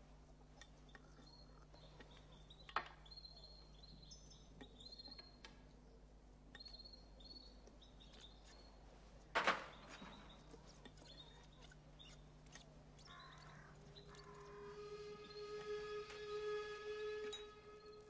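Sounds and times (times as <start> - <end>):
songbirds chirping: 0.0 - 18.0
music: 14.7 - 18.0.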